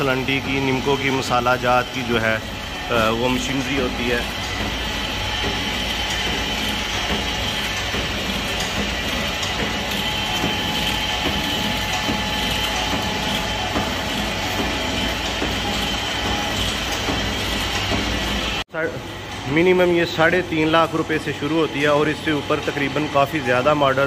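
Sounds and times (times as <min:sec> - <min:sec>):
machine high whine: 0:00.0 - 0:24.0.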